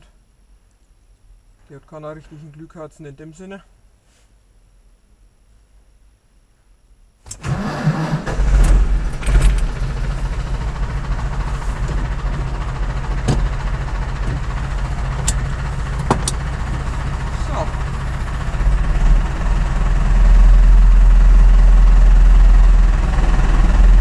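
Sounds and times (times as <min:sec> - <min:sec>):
starter cranking engine: 0:07.3 - 0:24.0
diesel tractor engine idling: 0:07.4 - 0:24.0.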